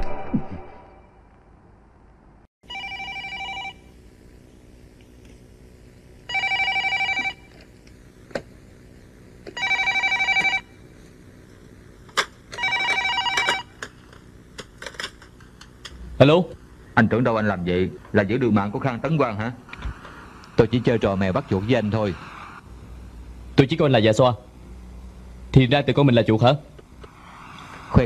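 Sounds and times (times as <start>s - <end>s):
landline telephone ringing: 2.6s - 3.9s, 6.3s - 7.5s, 9.5s - 10.8s, 12.5s - 13.8s.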